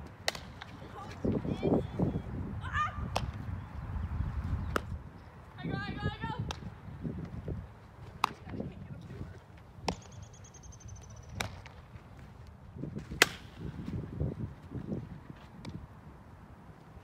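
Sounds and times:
bat hitting ball: 0.2s - 0.7s, 13.2s - 13.6s.

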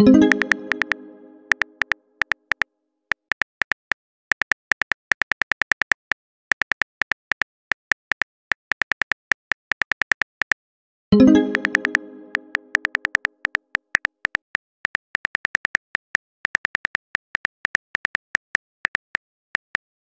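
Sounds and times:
message chime: 0.0s - 1.6s, 11.2s - 12.9s
phone keyboard typing clicks: 0.2s - 10.6s, 11.4s - 20.0s.

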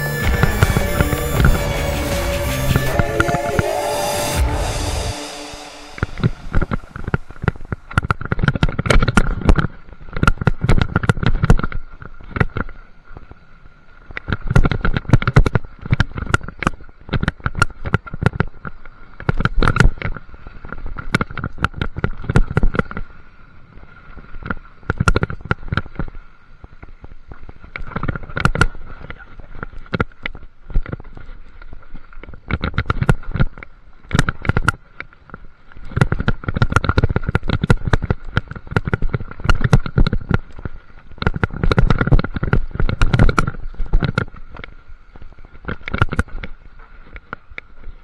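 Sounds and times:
steady high hum: 0.0s - 7.9s.

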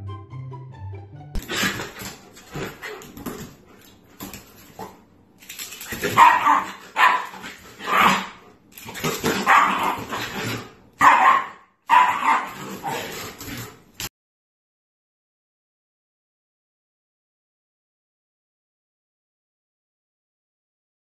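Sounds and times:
dog barking and yipping: 5.8s - 13.4s.

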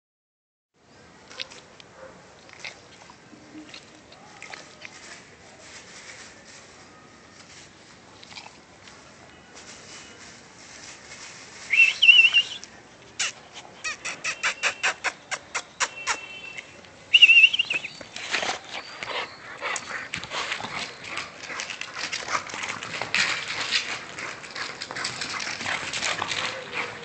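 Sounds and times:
dogs scuffling: 4.2s - 12.5s, 17.6s - 27.0s
dog whining: 13.2s - 15.6s
puppies yipping: 13.2s - 16.3s.

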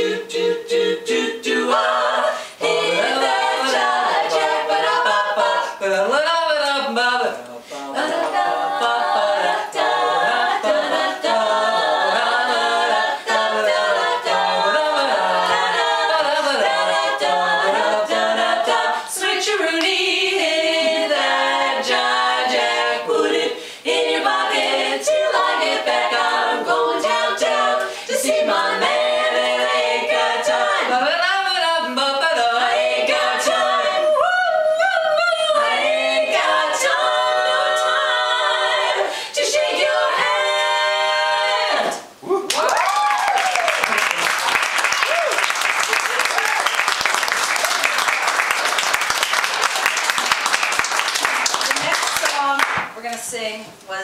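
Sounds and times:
women singing a cappella harmony: 0.0s - 42.3s.

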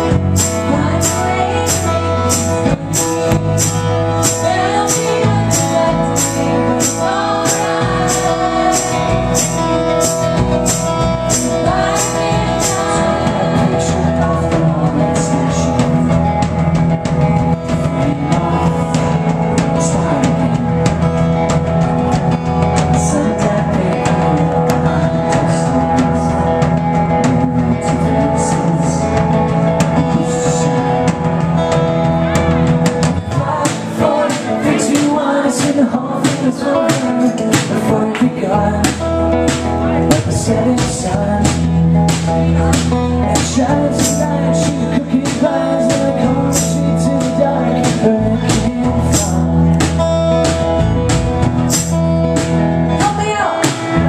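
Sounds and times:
acoustic guitar strumming: 0.0s - 54.0s
keyboard: 0.0s - 54.0s
woman singing: 0.4s - 9.8s, 11.3s - 16.2s, 33.2s - 49.8s, 52.9s - 54.0s.

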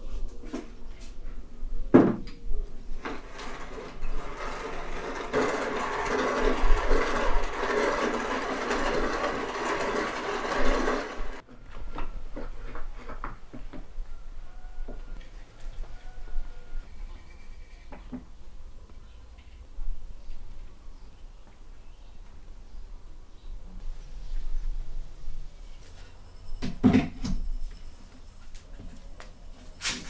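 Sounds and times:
hand mill grinding spice seeds: 3.1s - 11.4s.

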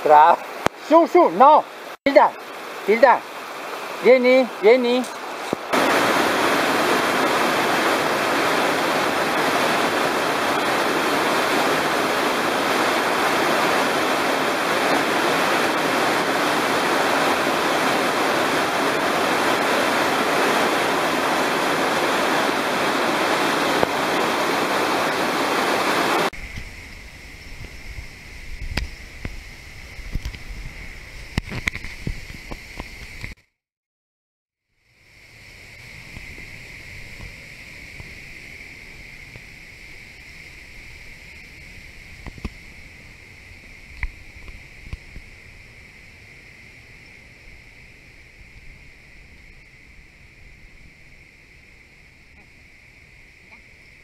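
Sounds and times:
waterfall rushing: 0.0s - 26.9s.

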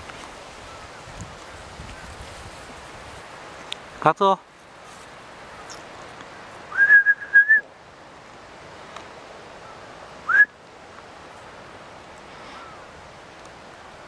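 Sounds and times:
person whistling: 6.7s - 7.6s, 10.3s - 10.5s.

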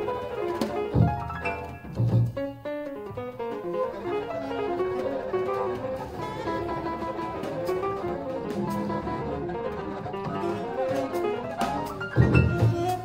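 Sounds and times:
piano: 0.0s - 13.0s
double bass: 0.8s - 2.5s, 3.1s - 13.0s
alto saxophone: 3.5s - 13.0s.

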